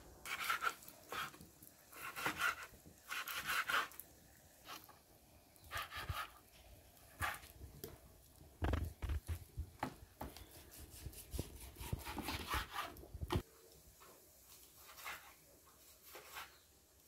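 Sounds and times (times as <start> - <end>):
knife slicing and scraping: 0.3 - 4.0.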